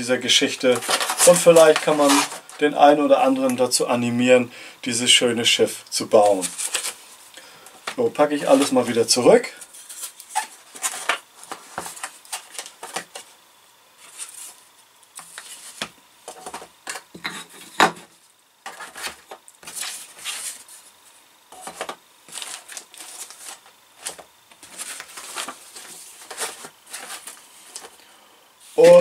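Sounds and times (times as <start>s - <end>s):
paper and plastic bags rustling: 0.3s - 3.6s, 6.1s - 7.2s, 8.2s - 13.3s, 18.6s - 28.0s.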